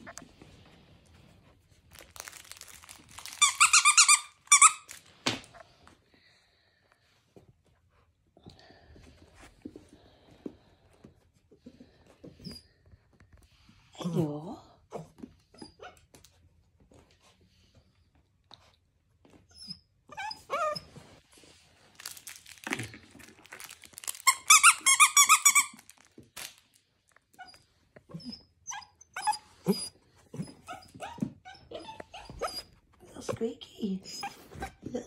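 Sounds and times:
squeaky dog toy squeaking: 3.1 - 5.0, 24.0 - 26.0.

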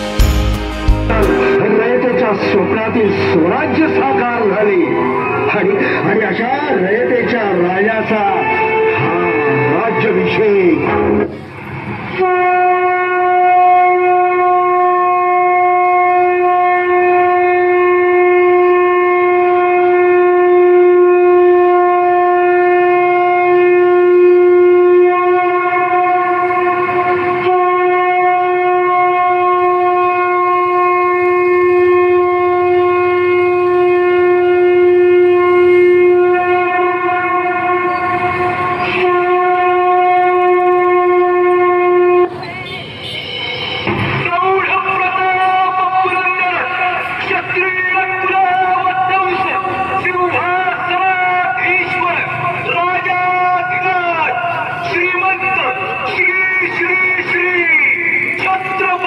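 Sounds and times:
horn blowing long note: 0.0 - 6.2, 7.6 - 42.4.

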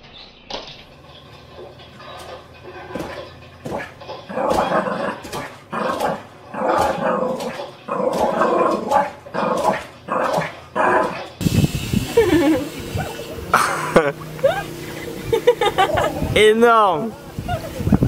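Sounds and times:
dog barking and yipping: 2.0 - 11.4, 12.8 - 13.5, 15.4 - 16.3
dog barking on tv: 2.0 - 11.4
steady rush of noise: 11.3 - 18.0.

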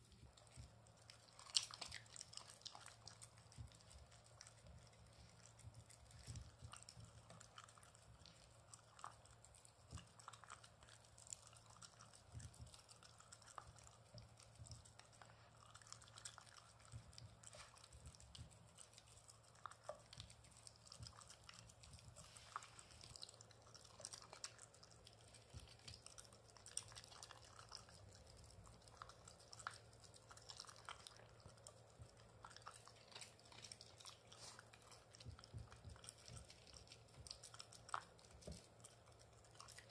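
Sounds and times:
dog chewing: 0.0 - 39.9
mouth and teeth clicks: 0.0 - 39.9.

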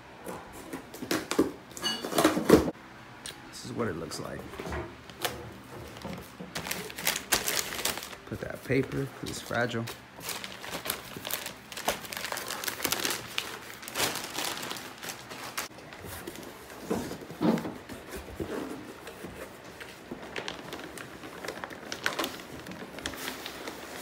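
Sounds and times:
paper and plastic bag rustling: 5.2 - 24.0.

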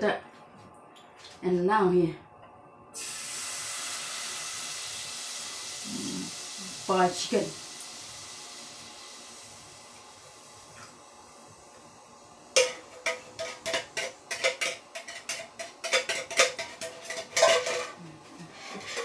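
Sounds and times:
metal spoon scraping in tin can: 12.6 - 19.0.

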